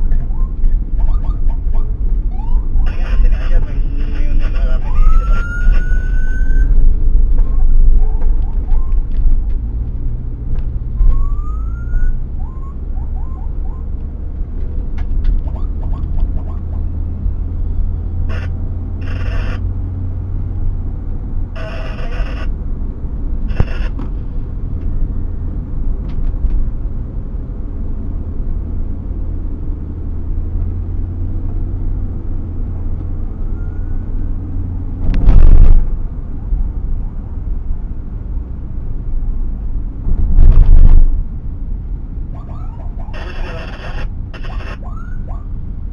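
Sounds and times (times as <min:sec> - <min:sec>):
road and engine rumble: 0:00.0 - 0:45.9
siren whoops: 0:00.3 - 0:03.0, 0:04.8 - 0:06.8, 0:11.0 - 0:13.9, 0:33.5 - 0:34.1, 0:42.4 - 0:45.5
bursts of noise: 0:02.8 - 0:06.8, 0:18.3 - 0:19.6.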